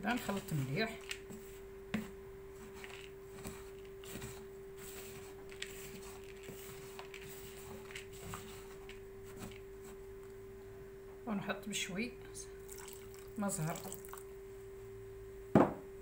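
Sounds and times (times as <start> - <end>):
faint hum: 0.0 - 16.0
spoon scraping in plastic bowl: 0.1 - 10.0.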